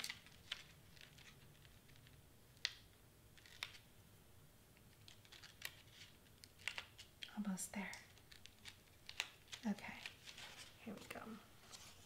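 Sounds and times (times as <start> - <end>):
cardstock clicking and rustling: 4.9 - 11.8.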